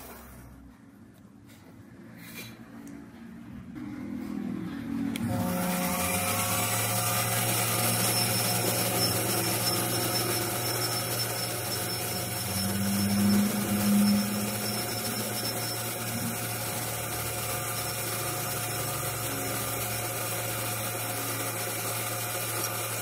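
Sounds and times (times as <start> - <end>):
lathe motor hum: 5.1 - 23.0
high hissing cutting whine: 5.2 - 23.0.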